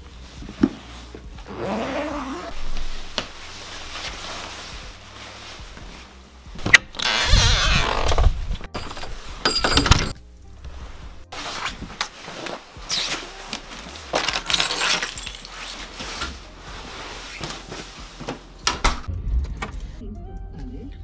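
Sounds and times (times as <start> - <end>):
background music: 0.0 - 21.0
clinks and knocks of objects handled: 8.7 - 10.2, 13.6 - 16.2.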